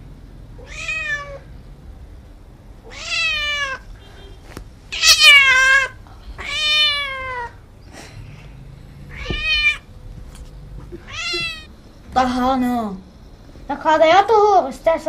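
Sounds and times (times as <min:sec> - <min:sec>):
cat meowing: 0:00.6 - 0:01.5, 0:02.8 - 0:03.8, 0:04.9 - 0:07.6, 0:09.1 - 0:09.9, 0:11.0 - 0:11.7.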